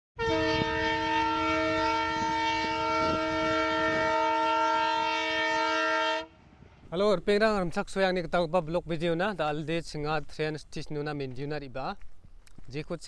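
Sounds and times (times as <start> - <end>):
locomotive horn blast: 0.2 - 6.5
train rumbling along track: 0.3 - 5.7.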